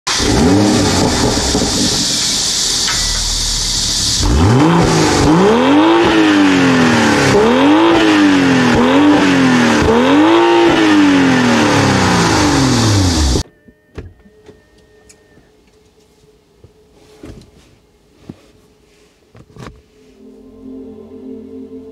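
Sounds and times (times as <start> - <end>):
car engine idling and revving: 0.1 - 13.4.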